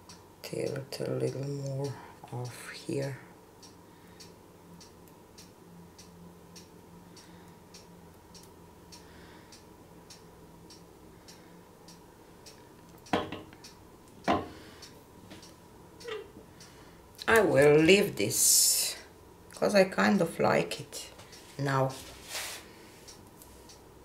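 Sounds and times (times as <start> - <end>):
clock ticking: 0.0 - 17.9.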